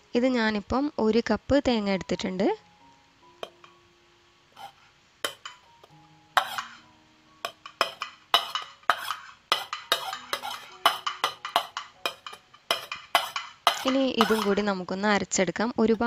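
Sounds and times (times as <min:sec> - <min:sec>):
soft background music: 0:00.0 - 0:16.0
spoon scraping and tapping plate: 0:03.4 - 0:03.8, 0:04.6 - 0:14.7.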